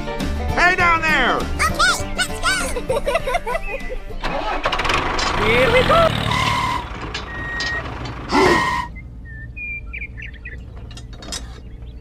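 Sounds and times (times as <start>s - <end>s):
low engine rumble: 3.6s - 12.0s.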